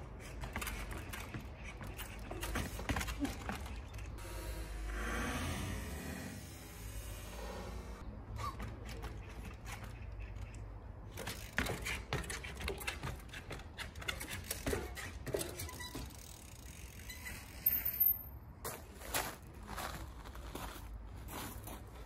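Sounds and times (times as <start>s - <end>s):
bike clicks and knocks: 8.5s - 18.2s
bike clattering: 11.0s - 18.2s.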